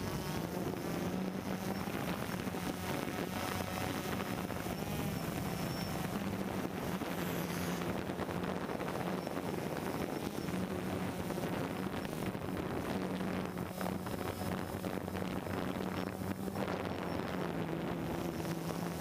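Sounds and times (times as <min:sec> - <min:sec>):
drone propellers buzzing: 0:00.0 - 0:19.0
wind over microphone: 0:00.0 - 0:19.0.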